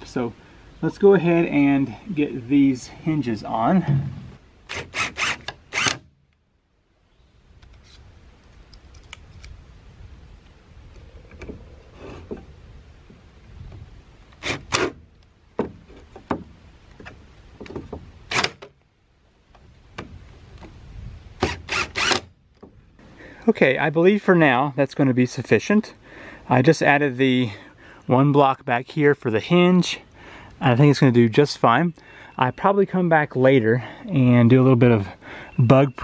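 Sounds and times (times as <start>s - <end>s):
cordless drill whirring: 4.7s - 6.0s, 21.4s - 22.2s.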